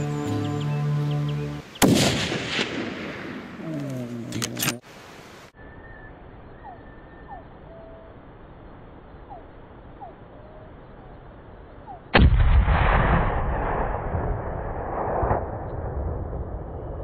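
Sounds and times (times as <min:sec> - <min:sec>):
bird chirps: 0:00.0 - 0:01.9, 0:05.6 - 0:12.1
faint outdoor hiss: 0:00.0 - 0:15.6
rifle shot echoing: 0:01.8 - 0:03.6, 0:12.1 - 0:15.6.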